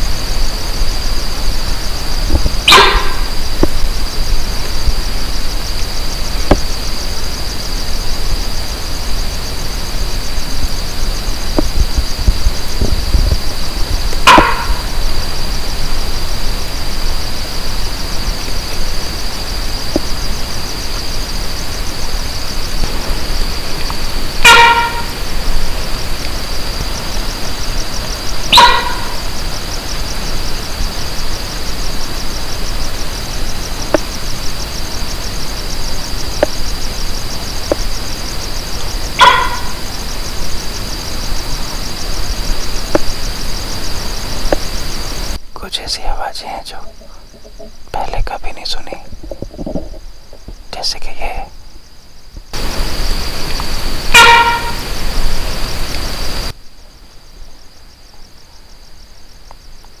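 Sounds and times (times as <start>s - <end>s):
insects chirring: 0.0s - 60.0s
animal sharp call: 2.6s - 3.5s, 14.1s - 15.2s, 24.3s - 25.3s, 28.4s - 29.4s, 39.1s - 39.9s, 54.1s - 54.9s.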